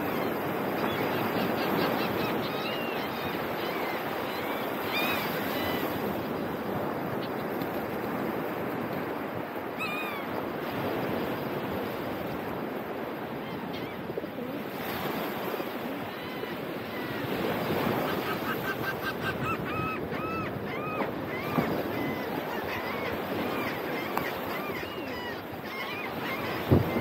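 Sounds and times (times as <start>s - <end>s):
gulls calling: 0.0s - 11.7s, 12.6s - 27.0s
surf washing onto beach: 26.2s - 27.0s.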